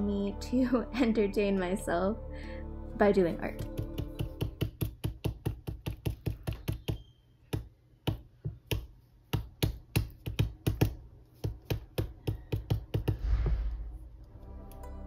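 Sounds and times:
cotton swab tapping on cardstock: 0:03.6 - 0:13.2.

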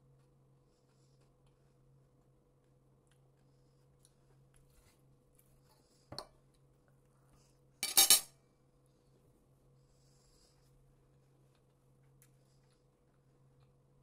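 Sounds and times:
fork clinking on ceramic plate: 0:07.8 - 0:08.3.

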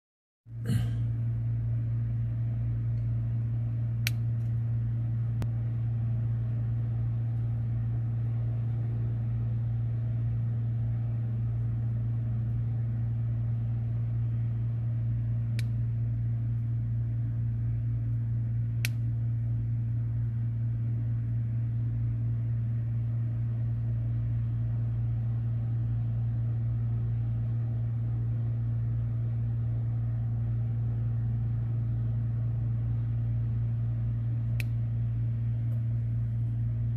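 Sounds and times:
low mechanical hum: 0:00.5 - 0:36.9
light sharp clicks: 0:18.8 - 0:19.1, 0:34.5 - 0:34.8.

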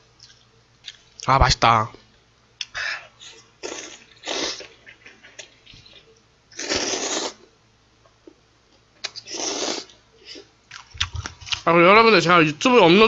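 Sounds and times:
person slurping noodles: 0:03.6 - 0:04.8, 0:06.6 - 0:07.5, 0:09.2 - 0:10.5.

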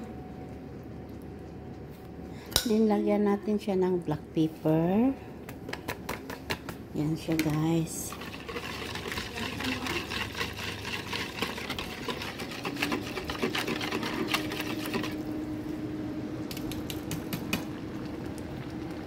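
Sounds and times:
faint steady hum: 0:00.0 - 0:19.0
metal utensil scraping plastic bowl: 0:08.1 - 0:15.2.

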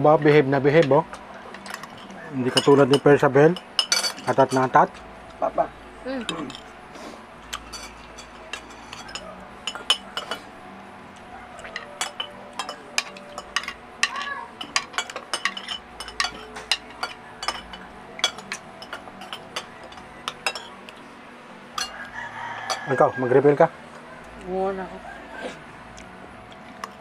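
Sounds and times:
cutlery clinking against plates: 0:00.7 - 0:05.0, 0:06.3 - 0:06.8, 0:07.4 - 0:10.5, 0:11.6 - 0:21.0, 0:21.8 - 0:23.0.

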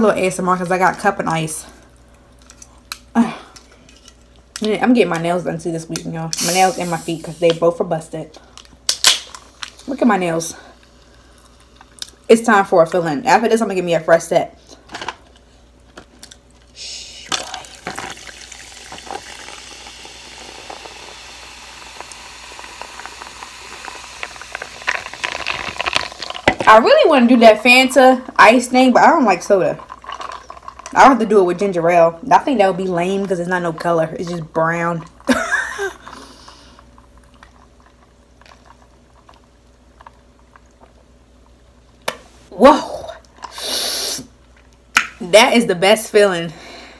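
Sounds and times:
soda fizzing over ice: 0:06.4 - 0:07.6, 0:17.2 - 0:26.5
carbonation crackling: 0:15.8 - 0:42.2
liquid pouring: 0:17.4 - 0:26.6, 0:29.3 - 0:31.2
ice cracking and clicking: 0:22.0 - 0:26.7.

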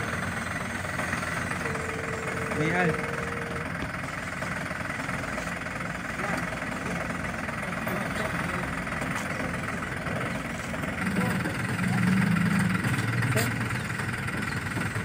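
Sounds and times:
toy truck motor humming: 0:00.0 - 0:07.2.

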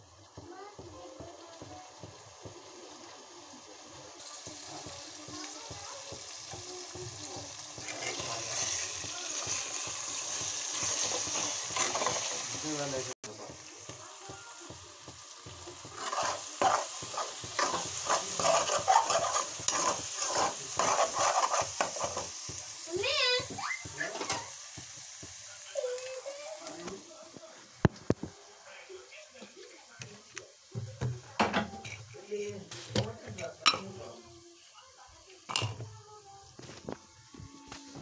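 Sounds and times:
food sizzling in oil: 0:00.0 - 0:38.0
spatula scraping pan: 0:04.2 - 0:12.6, 0:14.6 - 0:25.0, 0:31.5 - 0:34.0.

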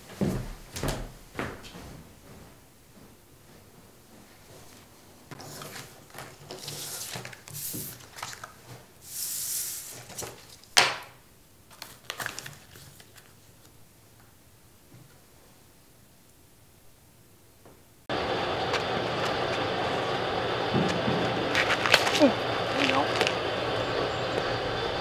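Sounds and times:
rustling and scraping on table: 0:04.5 - 0:10.6.

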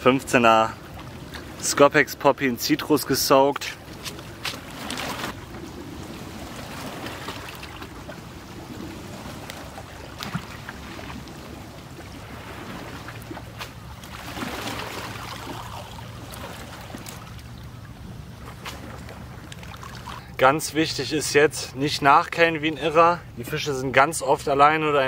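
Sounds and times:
river water flowing: 0:00.0 - 0:25.0.

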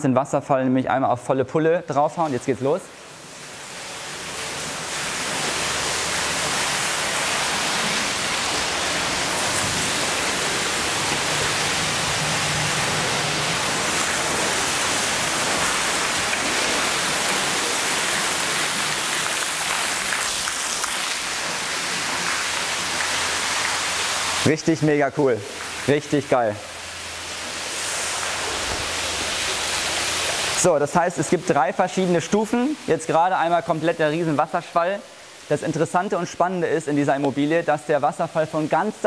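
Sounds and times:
waterfall torrent: 0:02.2 - 0:39.0.

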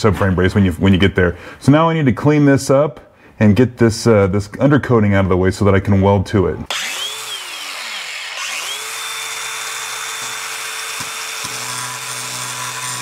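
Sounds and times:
angle grinder grinding metal: 0:06.7 - 0:13.0.

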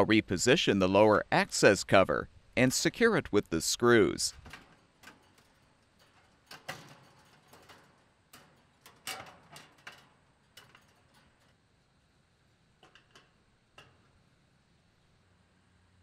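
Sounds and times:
metallic clicks and taps: 0:04.3 - 0:11.6, 0:12.8 - 0:14.2.

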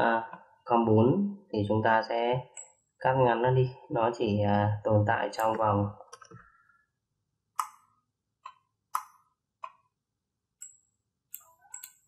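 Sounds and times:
computer mouse clicking: 0:07.6 - 0:09.8, 0:10.6 - 0:12.0.

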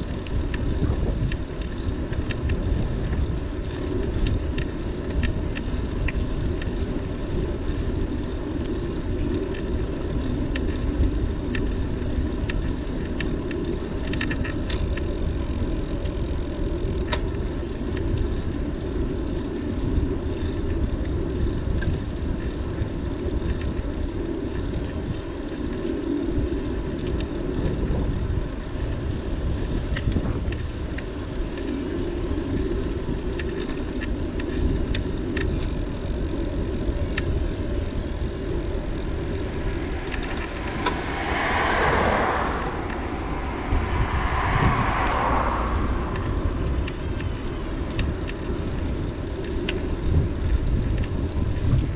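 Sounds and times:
wind on microphone: 0:00.0 - 0:18.8, 0:26.3 - 0:51.9
road rumble: 0:00.0 - 0:51.9
vehicles passing: 0:35.6 - 0:51.3.

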